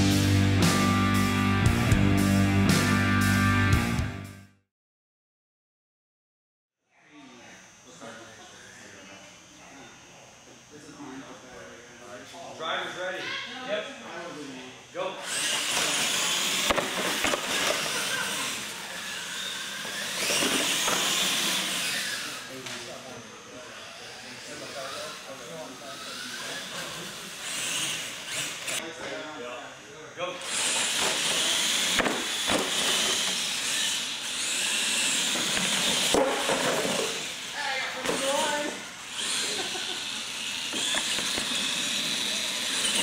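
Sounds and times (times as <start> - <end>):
electric motors and tyres hissing: 15.0 - 29.0, 30.2 - 43.0.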